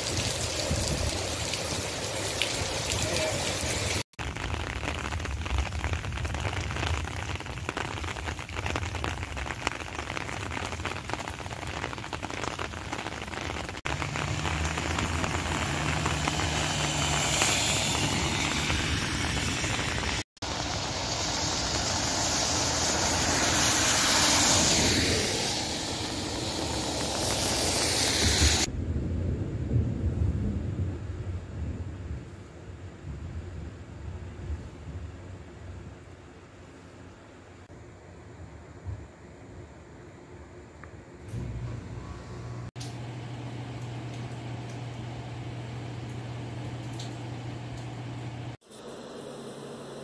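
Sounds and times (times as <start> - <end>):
rain falling on wet street: 0.0 - 28.7, 42.8 - 48.6
tyres hissing on wet pavement: 0.0 - 28.7
low engine hum: 13.9 - 19.8, 41.3 - 49.9.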